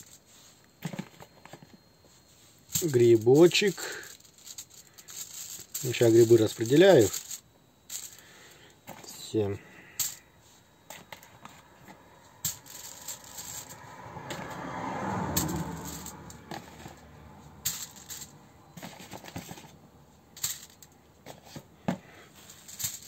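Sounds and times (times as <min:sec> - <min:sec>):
aluminium foil crinkling: 0:02.8 - 0:08.4, 0:12.5 - 0:13.7.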